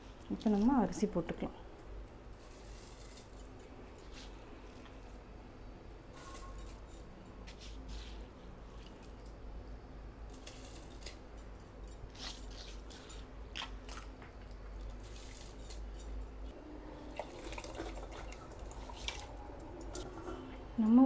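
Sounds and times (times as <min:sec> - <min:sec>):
water pouring: 0:16.8 - 0:20.6.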